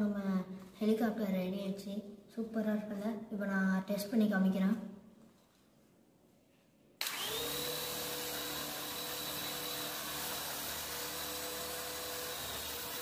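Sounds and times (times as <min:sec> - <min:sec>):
toy helicopter motor whine: 0:07.0 - 0:13.0.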